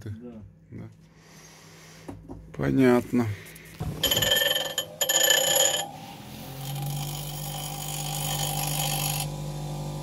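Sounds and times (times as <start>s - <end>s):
grinder motor hum: 4.0s - 10.0s
tip hissing on grinding wheel: 5.1s - 9.3s.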